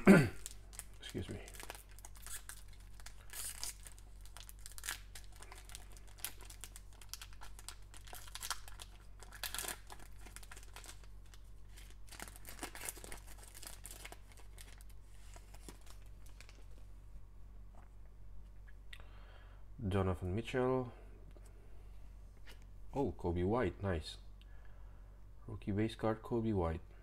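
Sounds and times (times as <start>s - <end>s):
foil wrapper crinkling and tearing: 0.4s - 16.6s.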